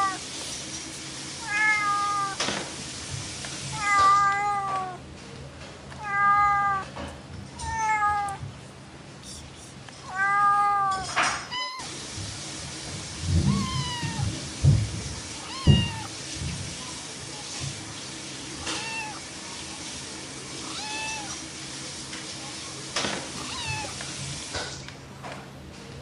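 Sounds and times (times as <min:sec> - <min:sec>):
cat meowing: 0:00.0 - 0:00.2, 0:01.4 - 0:02.4, 0:03.7 - 0:05.0, 0:06.0 - 0:06.9, 0:07.6 - 0:08.5, 0:10.0 - 0:11.9, 0:13.3 - 0:14.4, 0:15.4 - 0:16.1, 0:18.6 - 0:19.2, 0:20.6 - 0:21.4, 0:23.4 - 0:24.0.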